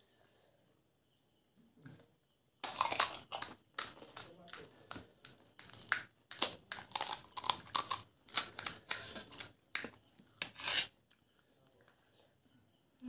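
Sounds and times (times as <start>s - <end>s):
crisp shells cracking: 2.6s - 4.6s, 5.2s - 9.9s
crunchy chewing: 2.6s - 12.1s.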